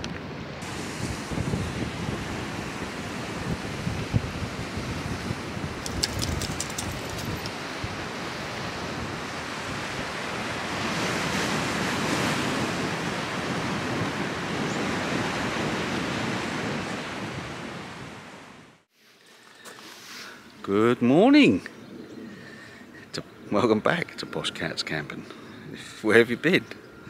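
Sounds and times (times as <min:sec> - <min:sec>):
wind rushing over microphone: 0:00.0 - 0:18.8.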